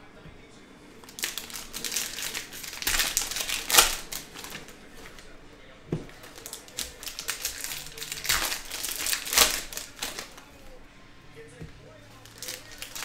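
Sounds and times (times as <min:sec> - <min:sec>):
foil wrappers crinkling: 0:01.0 - 0:05.4, 0:06.0 - 0:10.8, 0:12.1 - 0:13.0
cards being handled: 0:01.0 - 0:10.8, 0:11.6 - 0:13.0.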